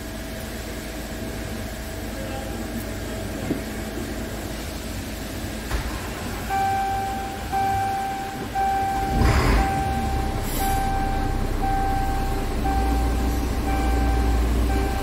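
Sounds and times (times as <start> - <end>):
diesel engine idling: 0.0 - 15.0
dashboard warning buzzer beeping: 6.4 - 15.0.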